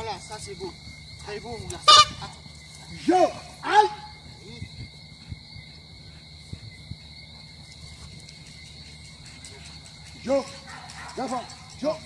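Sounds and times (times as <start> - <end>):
insects buzzing: 0.0 - 12.0
dog barking: 10.6 - 11.9.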